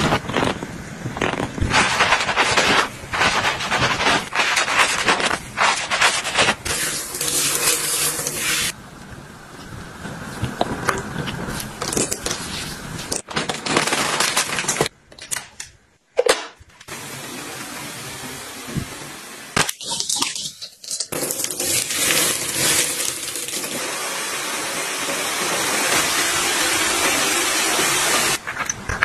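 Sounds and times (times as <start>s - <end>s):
hair dryer blowing: 22.1s - 28.4s.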